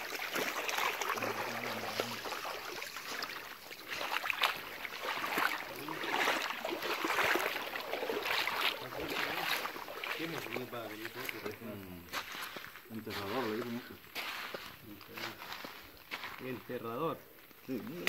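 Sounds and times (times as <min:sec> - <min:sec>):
wet net rustling: 0:00.0 - 0:11.6
river water flowing: 0:00.0 - 0:14.8.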